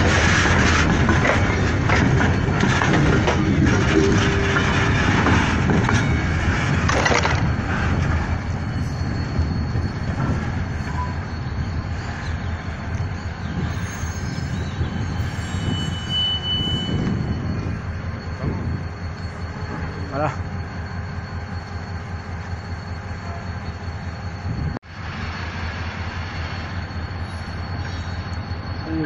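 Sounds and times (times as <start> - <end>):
wheel clatter: 0.0 - 8.0
wheel squeals: 0.0 - 24.7, 26.3 - 29.0
freight train wagons rumbling: 0.0 - 29.0.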